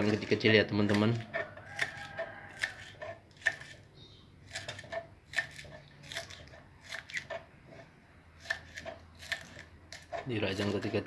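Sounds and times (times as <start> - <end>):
knife chopping on wooden board: 0.9 - 3.8, 8.4 - 11.0.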